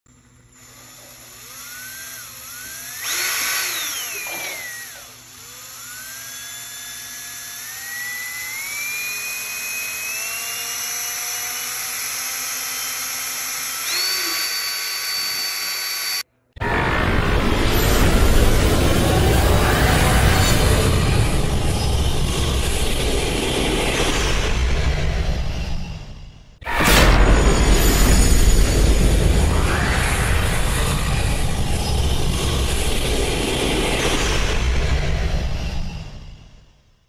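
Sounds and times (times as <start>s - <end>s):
cordless drill whining: 0.3s - 16.3s.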